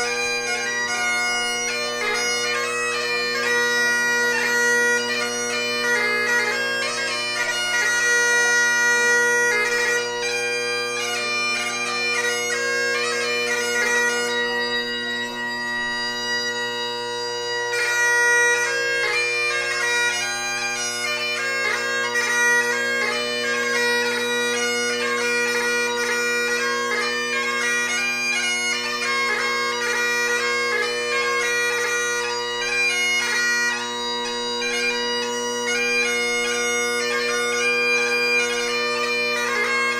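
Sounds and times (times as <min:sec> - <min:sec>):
bagpipe playing a tune: 0:00.0 - 0:39.9.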